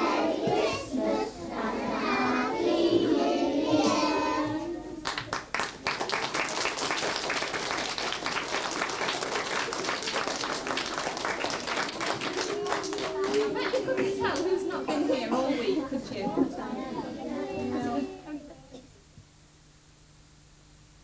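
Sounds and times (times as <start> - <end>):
children singing together: 0.0 - 5.2, 12.0 - 15.6, 16.3 - 18.8
audience clapping: 5.0 - 14.9.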